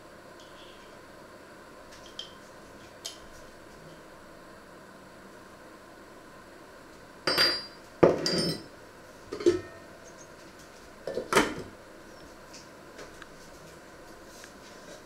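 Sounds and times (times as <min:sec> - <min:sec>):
utensils clinking on saucepan: 0:07.3 - 0:08.7.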